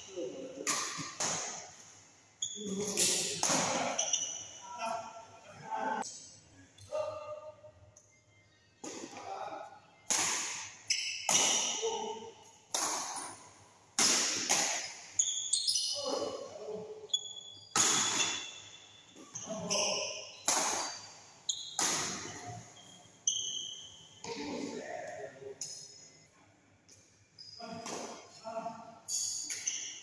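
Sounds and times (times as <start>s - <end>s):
rackets smacking shuttlecock: 0.6s - 1.6s, 10.1s - 11.8s, 12.7s - 13.4s, 14.0s - 15.0s, 17.7s - 18.5s, 20.4s - 22.6s
shoes squeaking on court: 0.9s - 4.6s, 14.7s - 16.4s, 17.1s - 24.4s, 29.1s - 30.0s.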